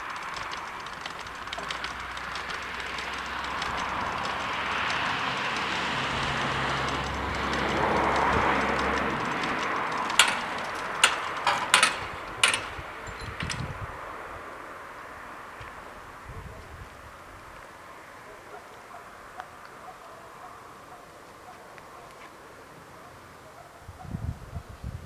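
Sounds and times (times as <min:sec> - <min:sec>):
barrier booms clacking and rattling: 0:00.0 - 0:13.8
barrier motors humming: 0:00.0 - 0:16.2.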